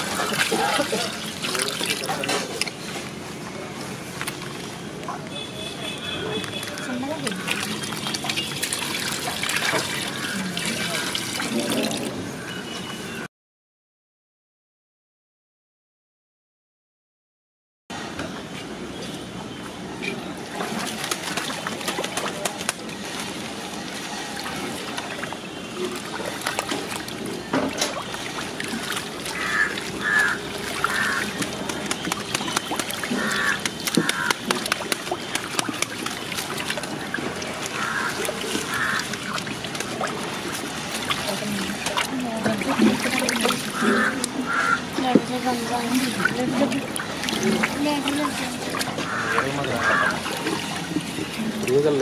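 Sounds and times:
milk sloshing in steel basin: 0.0 - 2.7, 6.7 - 12.2, 24.3 - 44.4, 45.4 - 52.0.

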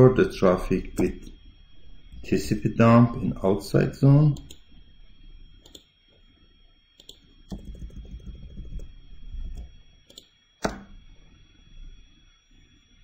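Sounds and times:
faint high-pitched whine: 0.0 - 13.0
computer mouse clicks: 5.6 - 5.9, 7.0 - 8.9, 9.5 - 10.9.

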